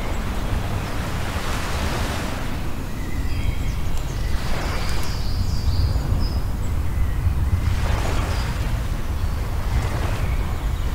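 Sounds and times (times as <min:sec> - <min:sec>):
surf washing up a shingle beach: 0:00.0 - 0:02.9.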